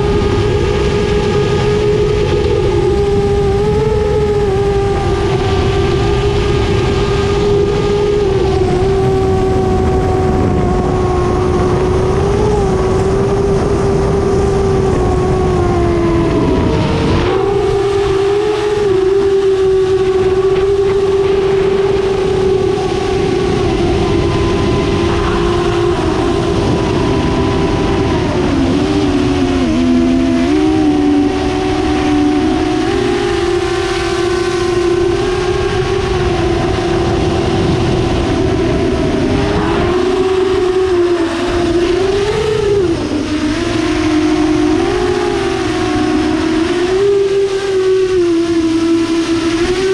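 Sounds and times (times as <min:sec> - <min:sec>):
drone motors humming: 0:00.0 - 0:49.9
rush of air: 0:20.0 - 0:29.7.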